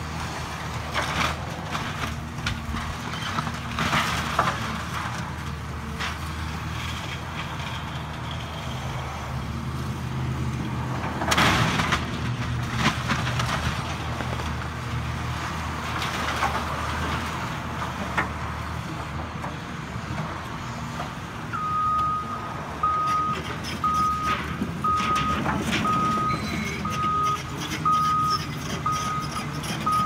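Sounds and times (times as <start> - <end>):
excavator diesel engine running: 0.0 - 30.0
debris crashing and cracking: 0.9 - 6.2, 11.1 - 14.8.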